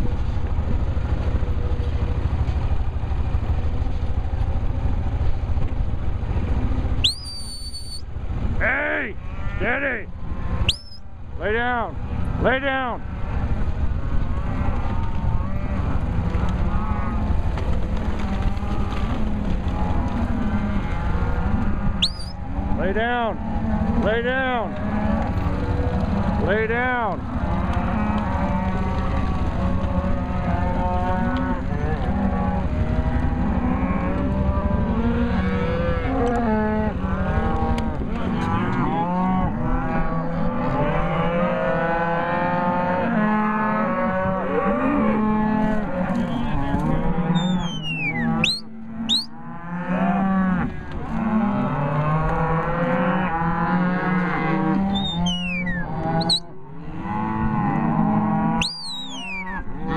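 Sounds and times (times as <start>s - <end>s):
cows and calves mooing: 6.4s - 59.9s
high falling whistles: 7.0s - 8.0s, 10.7s - 11.0s, 22.0s - 22.4s, 47.4s - 49.3s, 58.6s - 59.6s.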